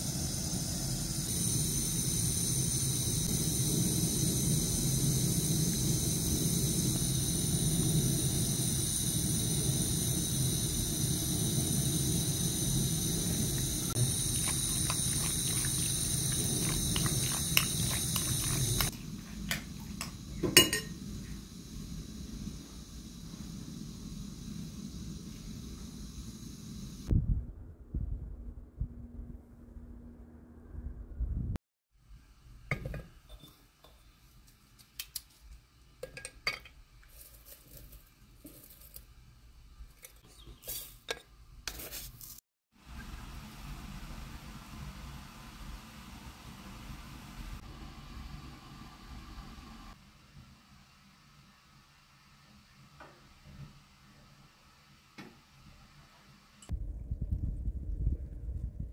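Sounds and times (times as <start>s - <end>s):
steady hiss: 0.0s - 27.1s.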